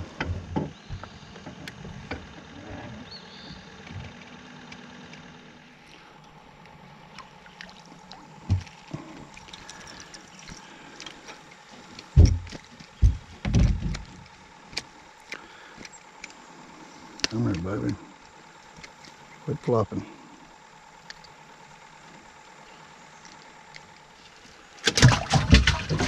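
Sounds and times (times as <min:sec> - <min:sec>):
fish splashing at water surface: 0:07.1 - 0:11.7, 0:24.8 - 0:26.0
dull low thumps: 0:12.1 - 0:14.1
small clicks: 0:21.0 - 0:21.4.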